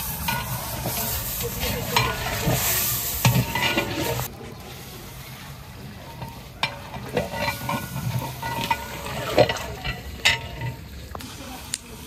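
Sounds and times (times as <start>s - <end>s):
metal ladle scraping a pot: 0.0s - 4.3s, 6.0s - 11.2s.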